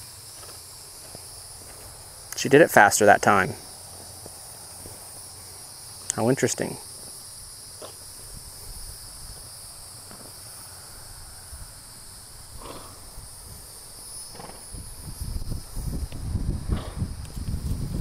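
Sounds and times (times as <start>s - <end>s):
hooves thudding on grass: 0.0s - 2.4s, 3.2s - 6.0s, 6.8s - 10.6s, 12.5s - 18.0s
insects droning: 0.0s - 18.0s
horse blowing breaths: 12.4s - 14.8s, 16.6s - 17.1s.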